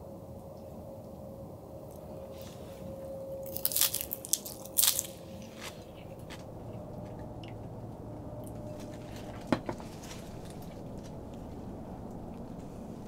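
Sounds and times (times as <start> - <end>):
crunching bites: 3.4 - 7.1.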